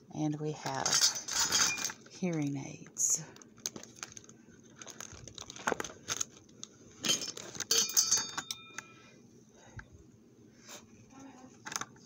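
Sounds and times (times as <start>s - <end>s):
metallic clinks: 7.1s - 9.0s.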